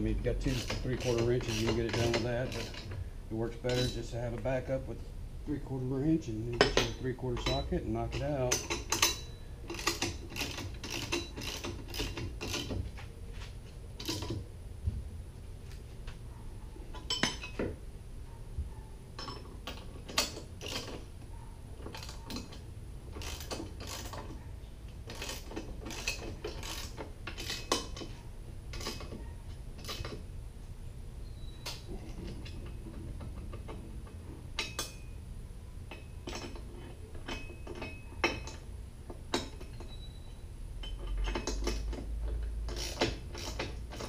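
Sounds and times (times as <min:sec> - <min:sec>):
metal tools clinking: 0:00.4 - 0:03.0, 0:03.6 - 0:04.5, 0:06.5 - 0:12.8, 0:16.9 - 0:17.7, 0:19.2 - 0:21.0, 0:25.1 - 0:30.2, 0:34.6 - 0:35.2, 0:35.9 - 0:38.7.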